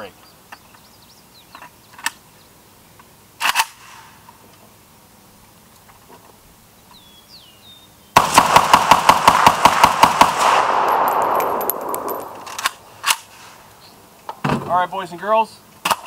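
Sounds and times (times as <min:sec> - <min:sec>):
rifle rapid fire with echo: 0:08.2 - 0:12.9
sharp metal clanks: 0:10.7 - 0:12.8.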